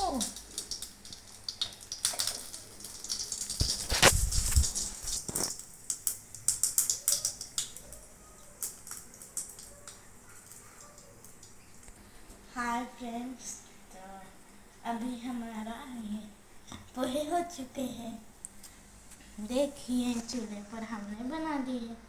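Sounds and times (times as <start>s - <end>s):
seeds crackling in hot oil: 0.0s - 13.9s, 18.4s - 21.8s
rustling: 2.2s - 5.6s.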